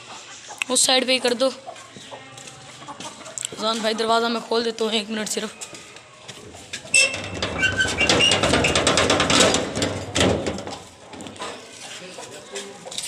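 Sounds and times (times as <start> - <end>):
metal squeaks: 6.5 - 11.0
metal bolt sliding: 6.8 - 10.9
metal door rattling open: 6.8 - 11.0.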